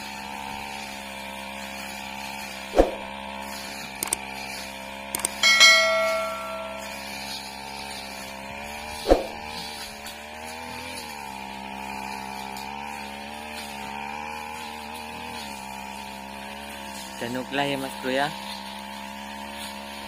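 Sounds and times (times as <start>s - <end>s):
brush cutter engine running: 0.0s - 20.0s
sharp clack with metallic ringing: 5.2s - 7.2s.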